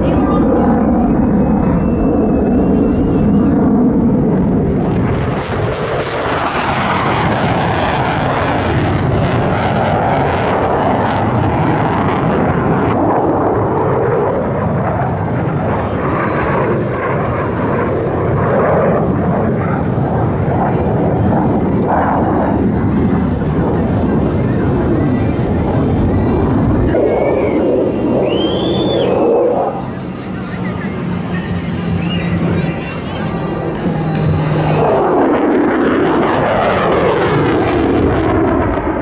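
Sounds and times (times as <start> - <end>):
fighter jet flying overhead: 0.0 - 39.0.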